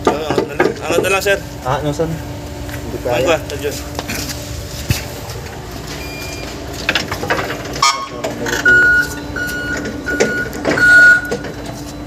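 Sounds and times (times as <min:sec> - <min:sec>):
steady electric hum: 0:00.0 - 0:12.0
forklift warning beeper: 0:05.9 - 0:06.7, 0:07.7 - 0:12.0.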